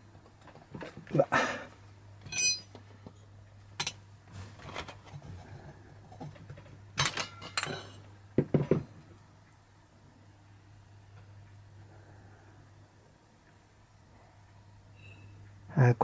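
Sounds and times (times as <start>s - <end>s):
metal clinks and knocks: 2.2s - 2.8s, 6.1s - 9.0s.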